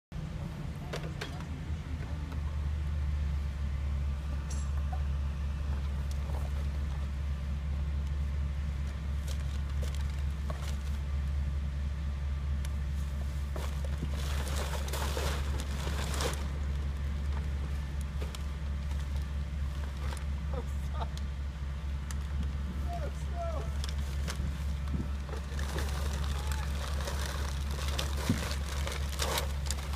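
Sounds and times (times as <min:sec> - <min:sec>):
car engine idling: 0:00.2 - 0:29.9
rustling noise: 0:12.9 - 0:20.4, 0:23.8 - 0:29.9.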